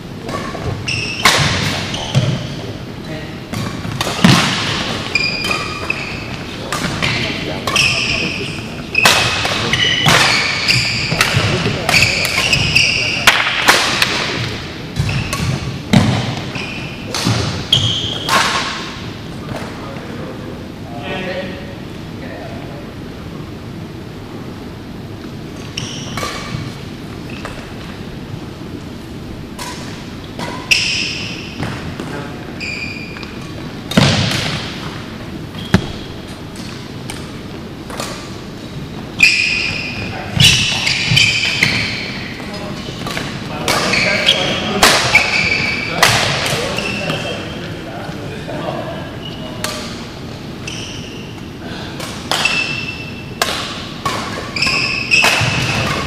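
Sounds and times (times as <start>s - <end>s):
racket hitting shuttlecock: 0.2s - 2.5s, 3.5s - 8.3s, 9.0s - 19.7s, 26.1s - 26.8s, 29.5s - 32.1s, 33.2s - 35.0s, 35.7s - 38.6s, 39.2s - 47.3s, 51.4s - 56.0s
shoes squeaking on floor: 0.3s - 2.7s, 4.2s - 13.3s, 15.0s - 15.6s, 16.2s - 18.4s, 25.5s - 27.9s, 30.3s - 34.3s, 35.5s - 36.8s, 38.6s - 47.8s, 49.1s - 49.8s, 50.5s - 51.6s, 52.3s - 53.4s, 54.3s - 56.0s.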